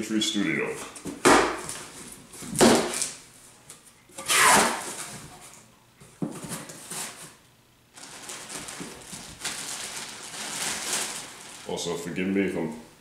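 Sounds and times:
plastic wrapping rustling: 1.5s - 3.2s, 6.2s - 12.7s
cardboard flaps scraping: 4.2s - 5.5s.

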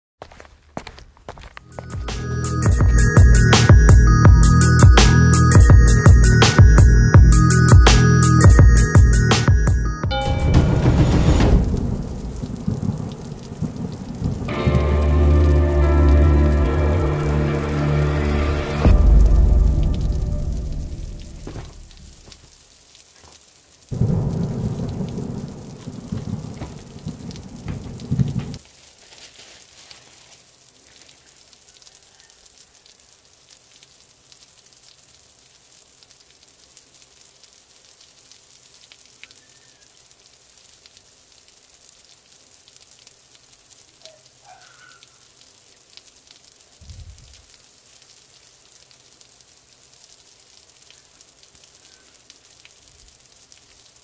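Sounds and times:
soft thump: 21.4s - 22.0s
tissue paper rustling: 28.7s - 30.5s.

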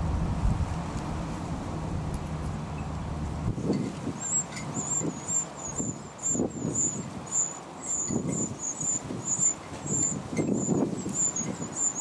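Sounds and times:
wind gusts on microphone: 0.0s - 12.0s
nestlings cheeping: 4.2s - 12.0s.

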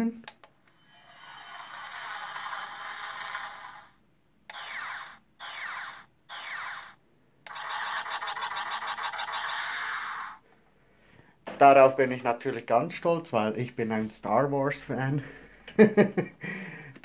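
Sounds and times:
electronic zaps falling in pitch: 4.5s - 10.4s.

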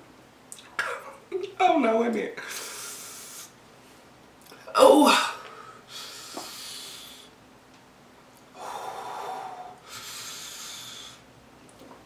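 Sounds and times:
person breathing hard through mouth: 5.5s - 7.4s, 8.5s - 11.3s.

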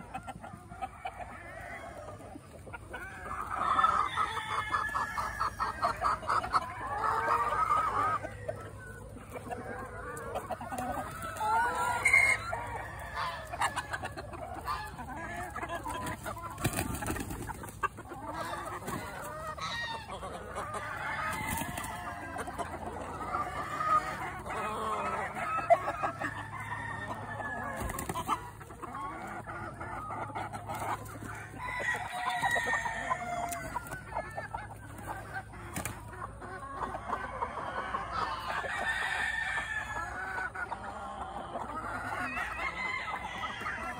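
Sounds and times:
hens clucking: 0.0s - 43.9s
rooster crowing: 3.8s - 5.5s, 31.6s - 33.8s, 42.5s - 43.9s.

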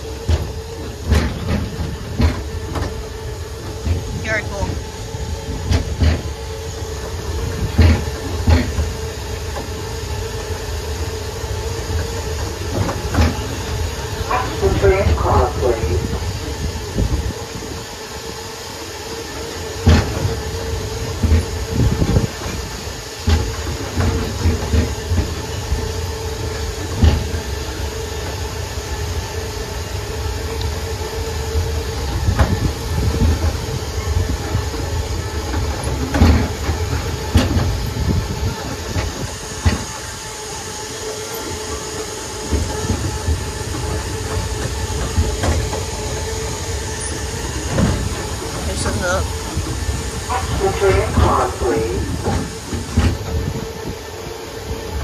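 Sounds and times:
tram hum and rumble: 0.0s - 55.0s.

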